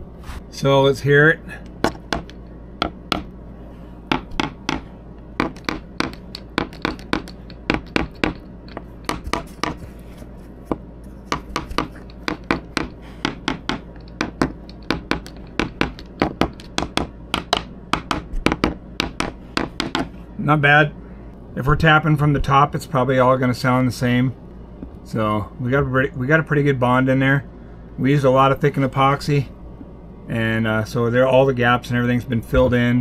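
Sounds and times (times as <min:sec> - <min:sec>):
sharp tapping knocks on fiberglass: 0:01.8 - 0:03.3, 0:04.1 - 0:09.8, 0:10.7 - 0:20.1.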